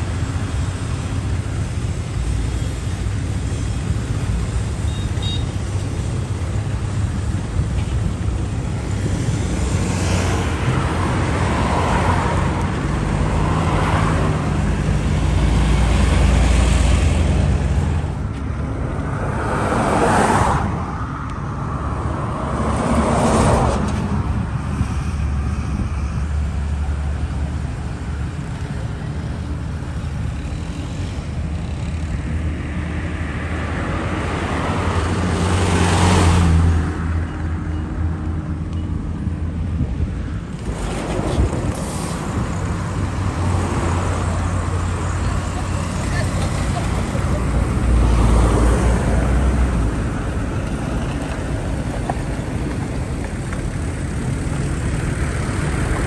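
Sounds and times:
road traffic rumble: 0:00.0 - 0:56.0
vehicles passing close by: 0:00.0 - 0:56.0.

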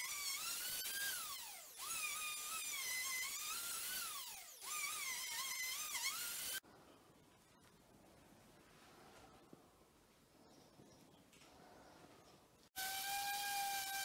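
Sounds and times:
router whining: 0:00.0 - 0:06.6, 0:12.8 - 0:14.0.

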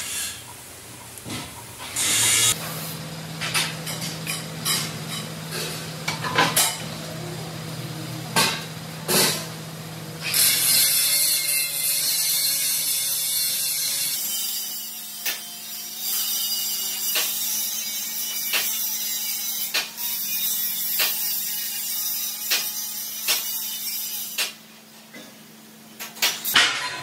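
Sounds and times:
spray gun hissing: 0:02.0 - 0:03.0.

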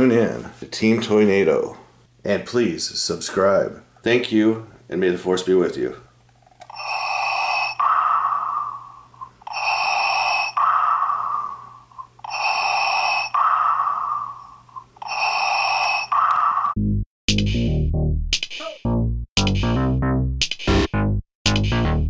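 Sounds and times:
respirator breathing: 0:06.7 - 0:16.8.

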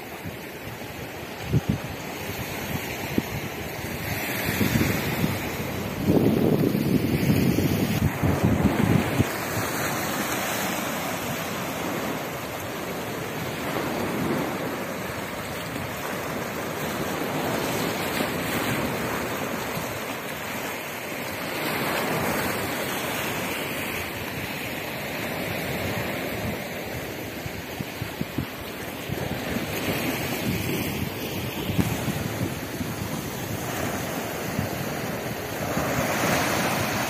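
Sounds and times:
sea waves splashing against rocks: 0:00.2 - 0:37.0.

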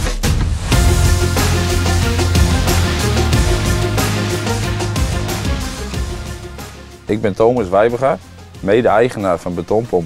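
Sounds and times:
music with strong bass line: 0:00.0 - 0:07.2.

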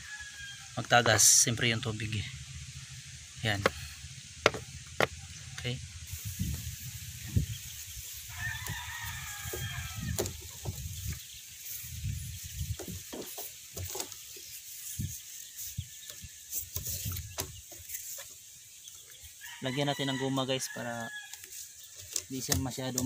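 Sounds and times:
rooster crowing: 0:00.0 - 0:01.2, 0:08.3 - 0:10.6, 0:19.3 - 0:21.5
knocks and taps: 0:04.4 - 0:05.2.

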